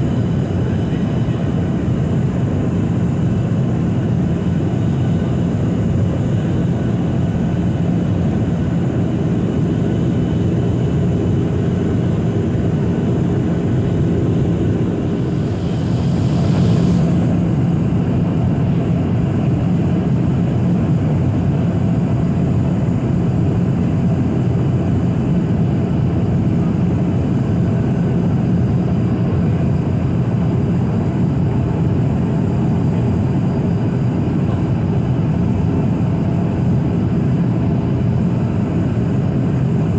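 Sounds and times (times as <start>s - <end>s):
jet engine hum: 0.0s - 39.9s
airflow rushing: 7.2s - 18.7s.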